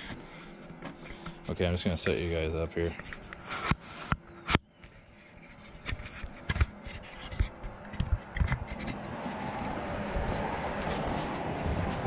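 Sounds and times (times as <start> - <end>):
steady background noise: 0.0 - 12.0
camera handling knocks and scraping: 5.5 - 9.4.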